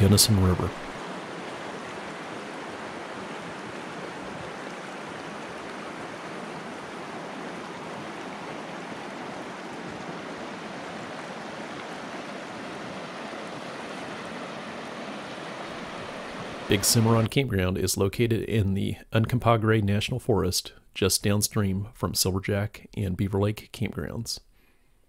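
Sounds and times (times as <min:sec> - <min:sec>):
river rushing over rocks: 0:00.8 - 0:17.3.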